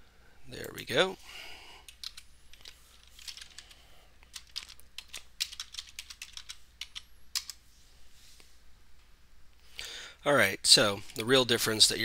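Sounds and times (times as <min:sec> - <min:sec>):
keyboard typing clicks: 0:01.9 - 0:03.7.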